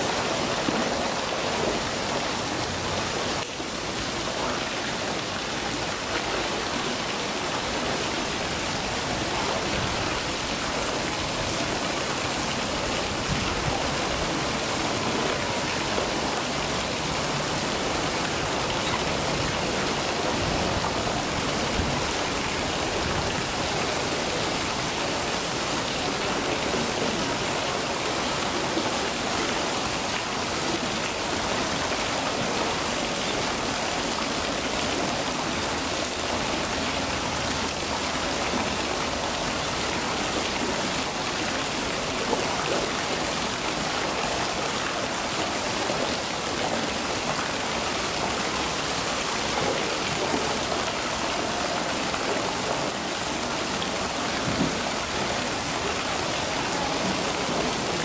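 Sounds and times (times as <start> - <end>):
rushing water: 0.0 - 58.0.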